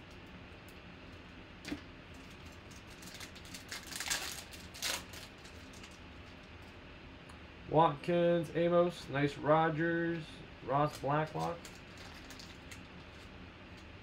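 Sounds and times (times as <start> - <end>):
foil wrapper crinkling and tearing: 2.1 - 6.4, 10.9 - 13.3.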